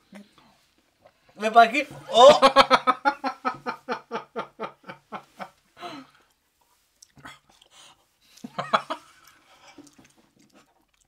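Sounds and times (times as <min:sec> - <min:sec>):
man laughing: 0:02.1 - 0:05.4.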